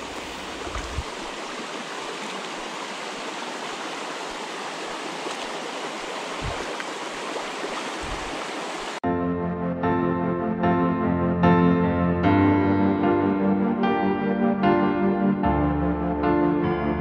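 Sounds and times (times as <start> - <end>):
stream babbling over stones: 0.0 - 9.0.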